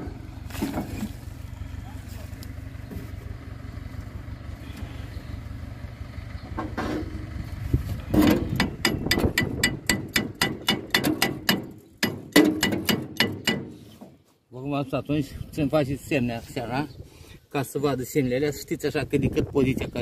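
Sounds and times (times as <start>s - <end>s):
steady low hum: 0.0s - 10.4s.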